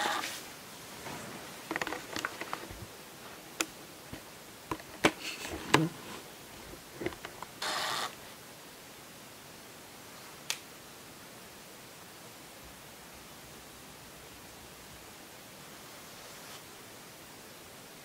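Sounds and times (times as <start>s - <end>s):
rustling: 0.0s - 8.3s, 15.8s - 16.8s
room hiss: 0.0s - 18.0s
sharp clicks and knocks: 1.7s - 2.8s, 7.0s - 7.5s.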